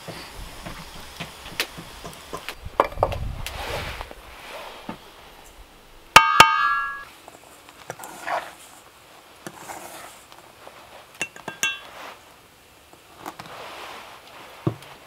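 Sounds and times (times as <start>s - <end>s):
wood fire crackling: 0.0s - 15.0s
metal spoon striking metal bowl: 6.2s - 7.1s, 11.2s - 11.9s.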